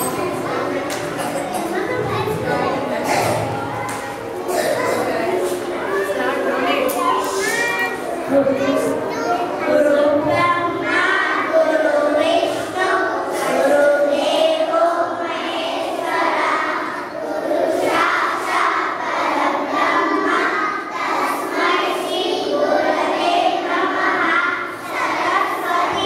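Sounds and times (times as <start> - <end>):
children singing in unison: 9.5 - 26.0.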